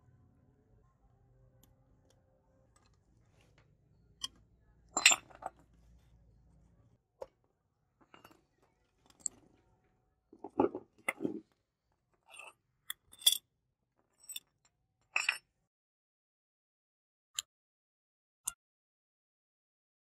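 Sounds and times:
metal parts clinking on wood: 0:12.3 - 0:13.4.

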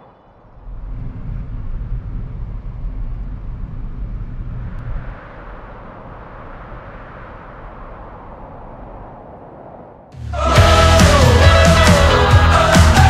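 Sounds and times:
car engine and road rumble: 0:00.0 - 0:10.2.

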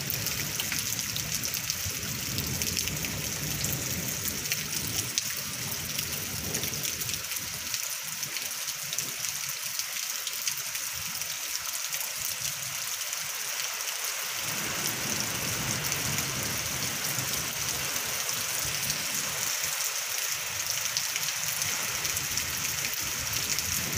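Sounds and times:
heavy rain falling: 0:00.0 - 0:23.9
wind gusting: 0:21.6 - 0:23.9.

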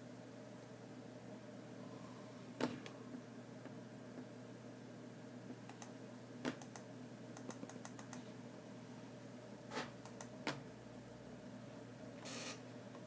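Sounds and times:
low steady hum: 0:00.0 - 0:13.0
computer mouse clicks: 0:05.7 - 0:08.2, 0:10.0 - 0:10.6.

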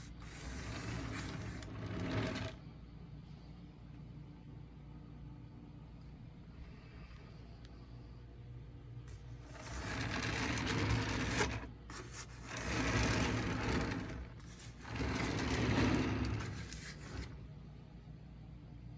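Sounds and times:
wooden board scraping on mat: 0:00.0 - 0:02.6, 0:09.4 - 0:17.4.

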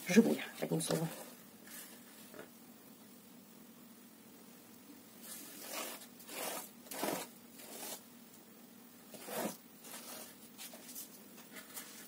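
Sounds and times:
dough tearing by hand: 0:05.4 - 0:08.0.

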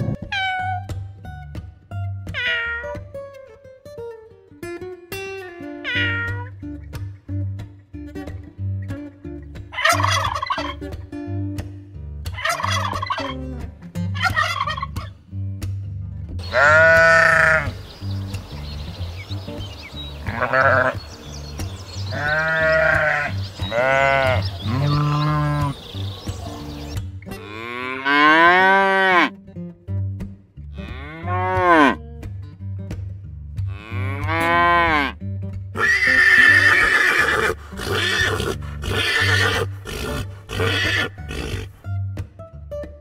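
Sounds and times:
background music: 0:00.0 - 0:43.0
farm animal calling: 0:05.8 - 0:06.5, 0:09.8 - 0:10.8, 0:12.4 - 0:13.4, 0:16.4 - 0:29.3, 0:35.8 - 0:41.8.

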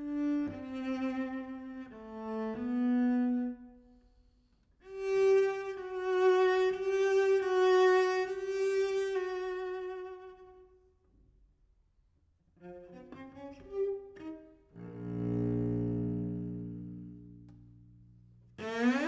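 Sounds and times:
cello bowed notes: 0:00.0 - 0:03.7, 0:12.6 - 0:19.0.

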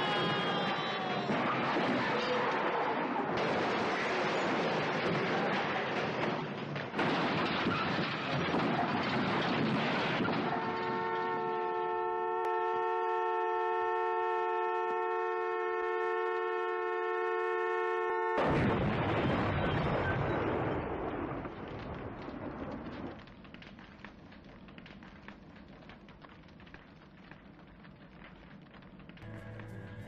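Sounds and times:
car crashing down with clatter: 0:01.3 - 0:11.0.

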